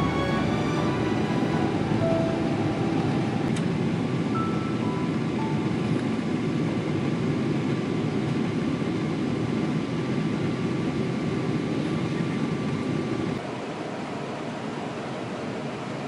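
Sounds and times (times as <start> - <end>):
faint high steady tone: 4.3 - 5.9.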